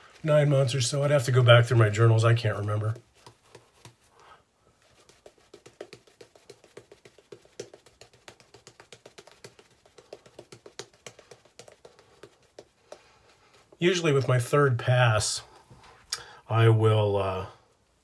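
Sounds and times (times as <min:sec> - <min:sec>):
shaving brush lathering face: 0:04.8 - 0:13.1.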